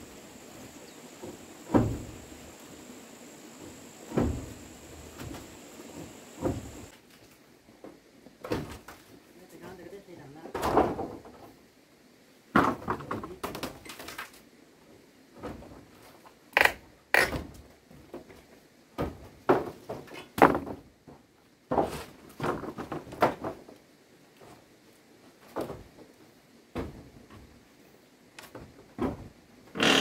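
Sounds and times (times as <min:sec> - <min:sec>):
knocks and thuds: 0:01.2 - 0:02.5, 0:03.6 - 0:06.9.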